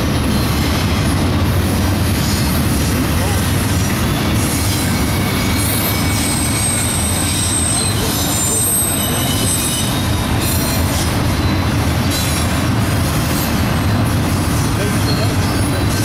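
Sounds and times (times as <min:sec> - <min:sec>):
train wheels rumbling on rail: 0:00.0 - 0:16.0
high-pitched wheel squeals: 0:04.2 - 0:12.6.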